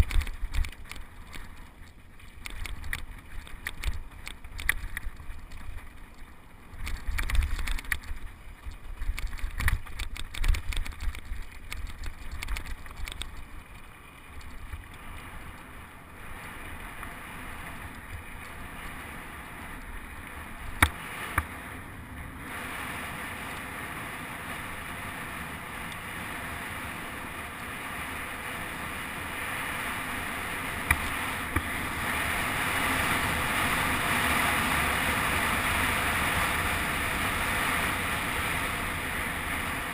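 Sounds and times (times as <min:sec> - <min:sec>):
mountain bike rattling over rocks: 0:00.0 - 0:15.7.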